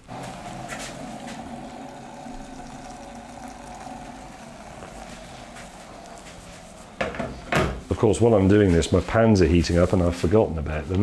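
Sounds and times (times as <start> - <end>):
hot water pouring into jug: 0.0 - 8.9.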